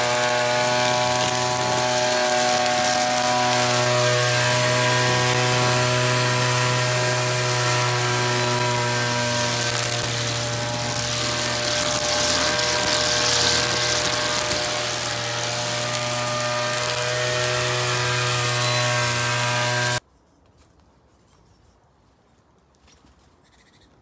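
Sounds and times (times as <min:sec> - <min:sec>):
string trimmer cutting grass: 0:00.0 - 0:20.0
faint outdoor sounds: 0:20.0 - 0:24.0.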